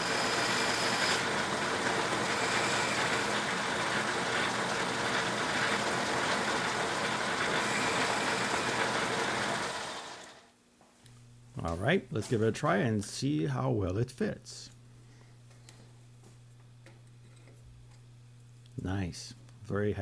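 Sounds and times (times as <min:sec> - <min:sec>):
hiss of metal cutting: 0:00.0 - 0:01.3, 0:02.2 - 0:03.4
metal lathe whirring: 0:00.0 - 0:10.5.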